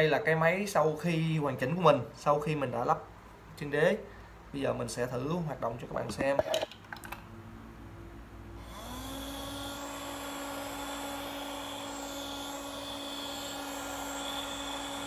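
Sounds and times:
mini blower motor whine: 8.6 - 15.0.

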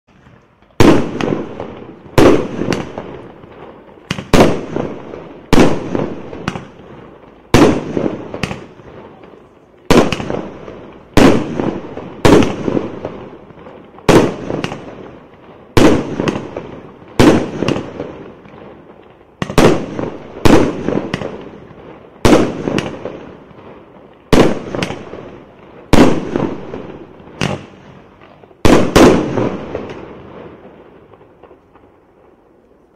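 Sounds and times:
fireworks bangs with rumble: 0.1 - 32.4.

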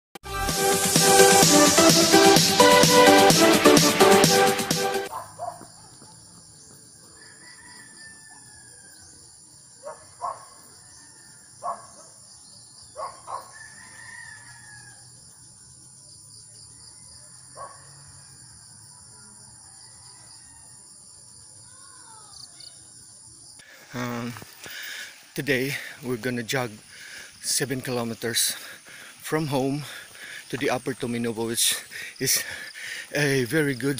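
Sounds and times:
insects droning: 5.1 - 33.9
rooster crowing: 7.0 - 9.4, 10.2 - 11.8, 13.3 - 15.2, 16.9 - 21.0.

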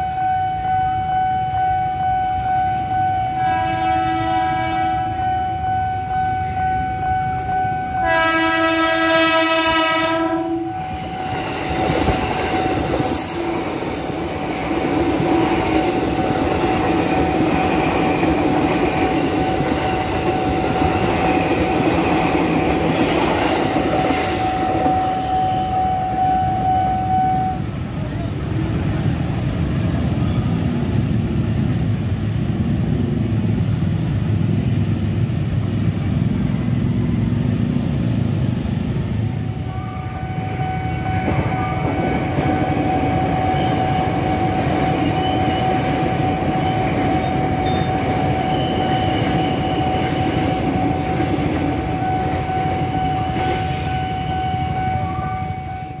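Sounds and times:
steady high tone: 0.0 - 8.6, 10.0 - 28.3, 39.2 - 56.0
train wheels rumbling: 2.8 - 56.0.

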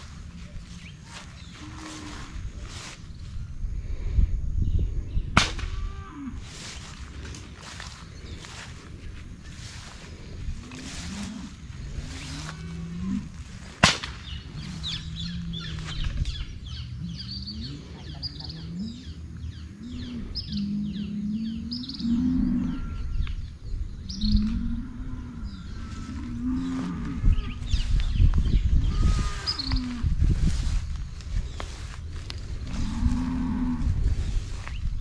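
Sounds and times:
small birds chirping: 0.0 - 3.6, 6.6 - 13.2, 14.0 - 35.0
sharp crack: 5.4 - 5.8, 13.7 - 14.4
cattle mooing: 19.8 - 23.2, 24.4 - 27.9, 28.8 - 30.1, 32.6 - 34.2.

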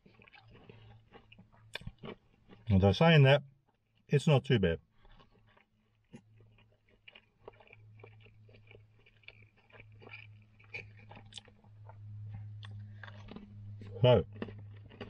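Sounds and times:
person chewing food: 0.0 - 2.8, 3.6 - 4.1, 4.8 - 15.0
low steady hum: 6.2 - 15.0.

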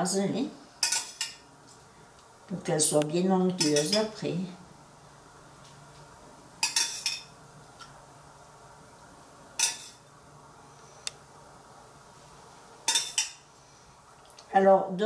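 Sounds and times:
metal spoon clinking saucepan: 0.8 - 1.4, 3.6 - 4.1, 6.6 - 7.3, 9.6 - 10.0, 12.9 - 13.4.

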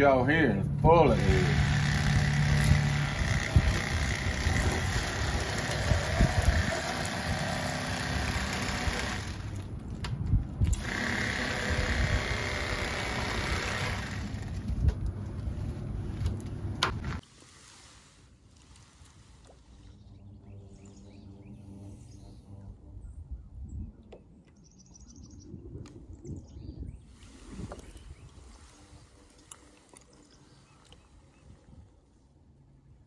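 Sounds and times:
electric knife motor buzz: 1.1 - 9.6, 10.7 - 14.6.

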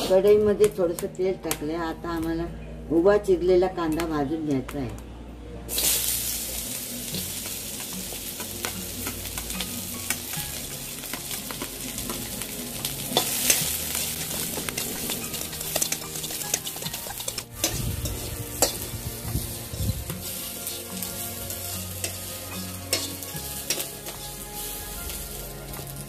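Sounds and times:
onions sizzling in oil: 5.7 - 26.0
spatula scraping a metal pan: 13.2 - 26.0.

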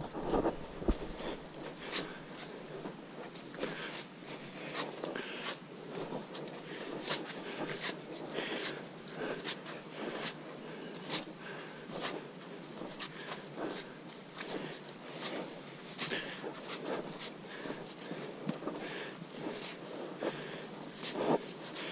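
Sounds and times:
footsteps on a dirt trail: 0.0 - 21.9
steady background hiss: 0.0 - 21.9.

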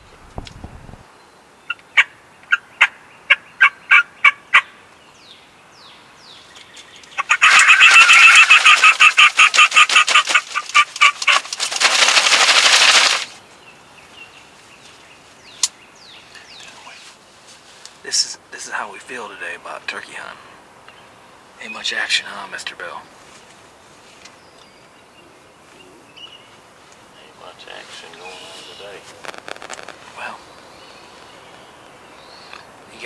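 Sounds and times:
fast turkey cackle: 1.7 - 4.8, 7.1 - 11.5
turkey call: 1.7 - 4.8, 7.2 - 11.4
umbrella flapping rustle: 7.8 - 13.4.

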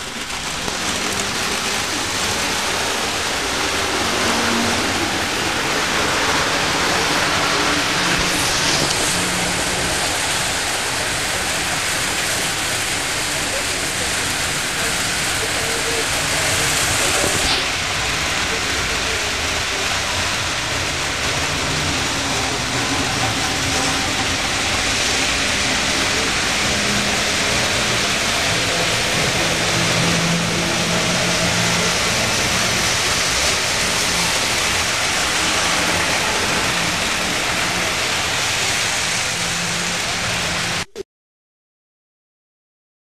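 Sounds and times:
even hiss: 0.0 - 40.9
model trains rolling rumble: 0.0 - 40.9.

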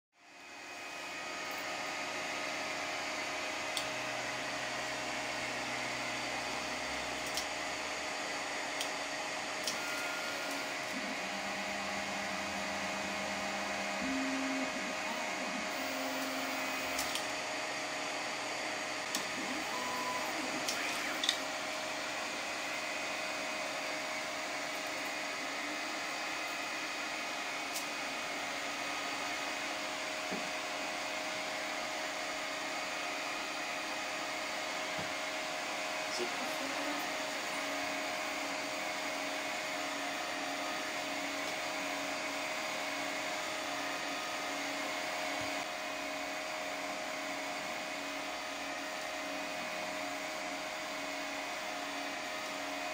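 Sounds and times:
cooling fans whirring: 0.2 - 52.9
stepper motors humming: 3.7 - 23.6.

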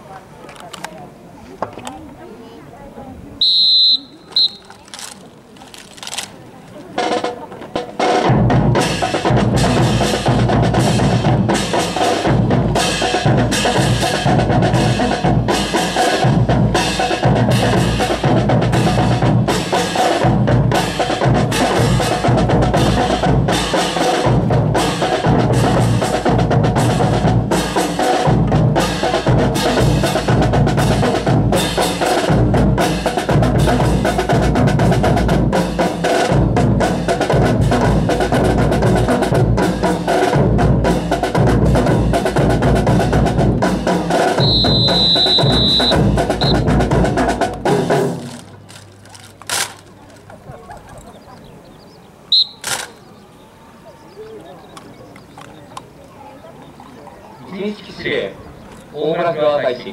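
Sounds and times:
marching snare and bass drums: 3.4 - 50.5.

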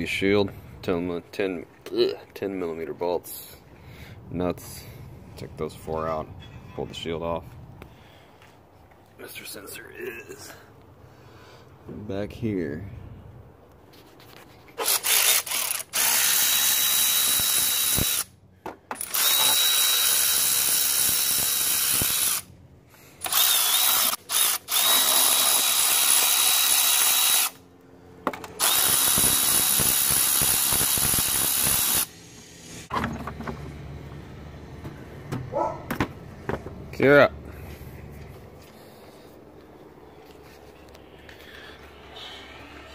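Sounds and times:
power ratchet whining: 14.8 - 18.3, 18.9 - 22.5, 23.2 - 27.6, 28.3 - 33.0.

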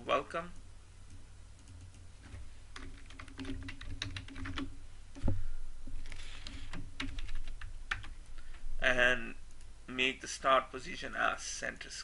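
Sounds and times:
typing on computer keyboard: 2.8 - 4.7, 6.4 - 8.1.

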